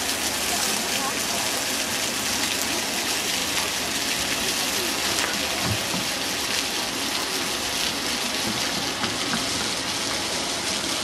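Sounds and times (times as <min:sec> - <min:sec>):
fountain water splashing on paving: 0:00.0 - 0:11.0.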